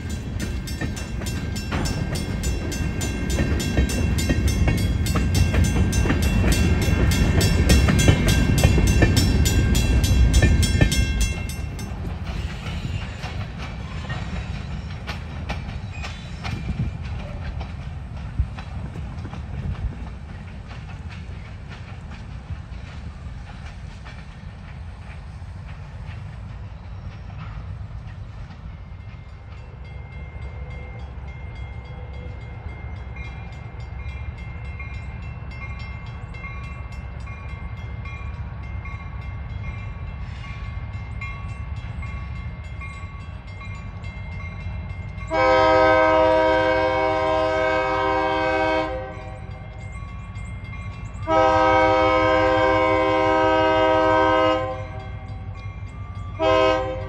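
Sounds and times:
locomotive horn blast: 0:45.3 - 0:49.5, 0:51.2 - 0:55.3, 0:56.4 - 0:57.0.

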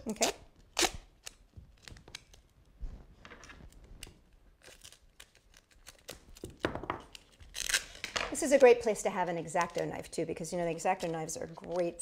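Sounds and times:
duct tape crinkling and peeling: 0:00.6 - 0:02.8, 0:03.5 - 0:08.6.

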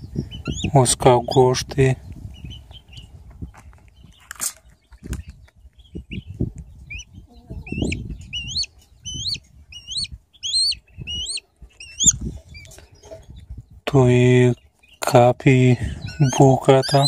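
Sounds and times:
chick begging calls: 0:00.0 - 0:01.6, 0:05.9 - 0:13.6, 0:14.4 - 0:17.0.

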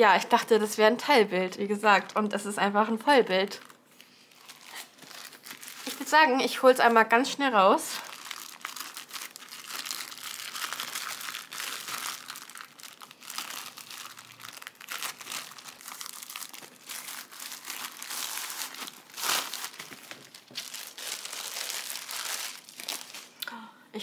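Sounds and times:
plastic wrapping crinkling: 0:03.4 - 0:07.0, 0:07.9 - 0:23.4.

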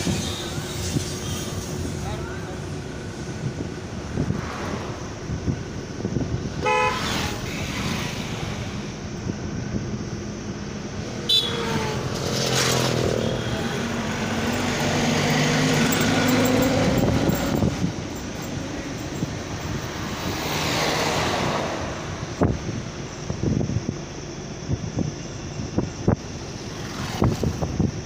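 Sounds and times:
engine drone: 0:00.0 - 0:28.0
road and wind noise: 0:00.0 - 0:28.0
vehicle horn toot: 0:06.6 - 0:07.1, 0:11.2 - 0:11.9.

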